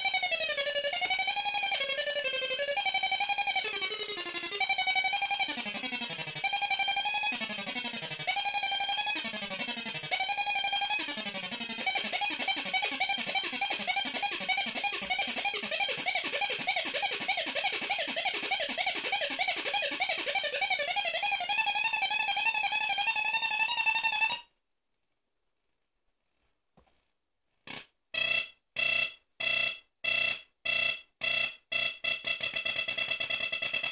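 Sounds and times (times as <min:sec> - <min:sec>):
warbling electronic synth tones: 0:00.0 - 0:23.6.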